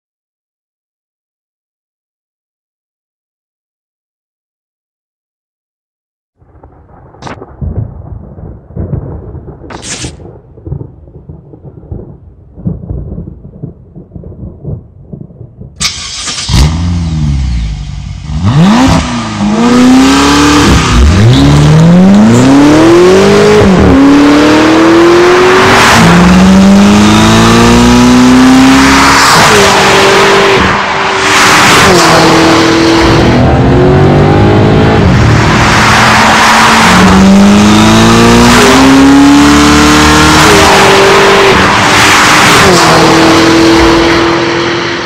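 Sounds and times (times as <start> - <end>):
car engine accelerating hard: 15.8 - 45.0.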